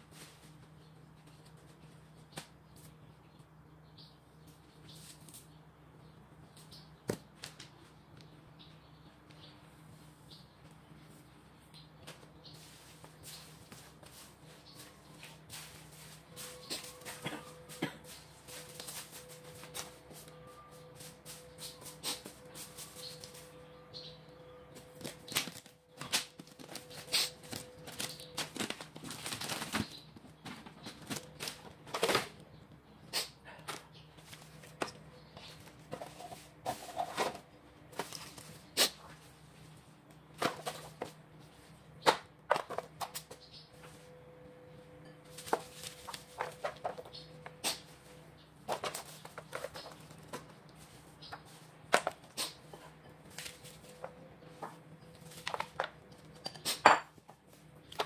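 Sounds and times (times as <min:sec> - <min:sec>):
faint steady hum: 0:00.0 - 0:58.0
gloved hands rustling foil tray: 0:25.3 - 0:32.2.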